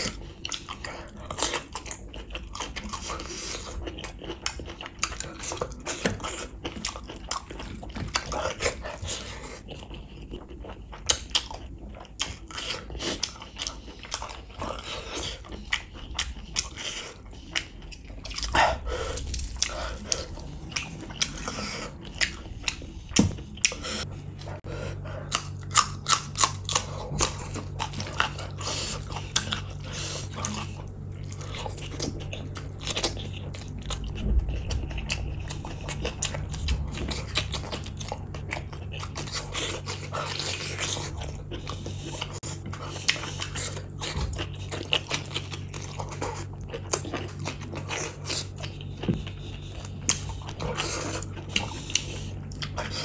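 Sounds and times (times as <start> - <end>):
wet chewing and lip smacking: 0.0 - 53.0.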